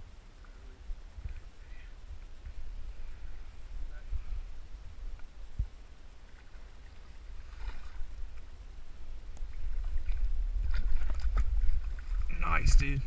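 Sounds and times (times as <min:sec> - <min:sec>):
wind rumble on microphone: 0:00.0 - 0:13.0
water splashing: 0:06.2 - 0:13.0.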